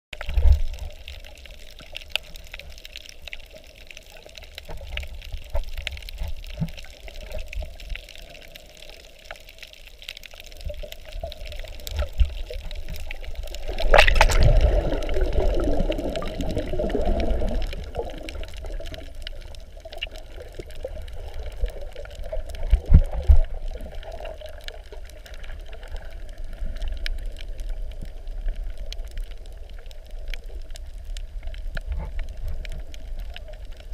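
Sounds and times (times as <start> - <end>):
crackling clicks: 0.1 - 33.9
churning bubbles: 0.2 - 30.6
muffled underwater rumble: 0.2 - 33.9.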